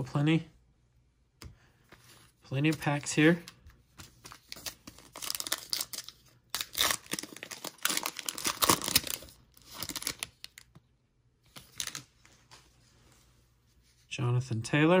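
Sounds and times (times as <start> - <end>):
foil wrapper crinkling and tearing: 4.4 - 10.7.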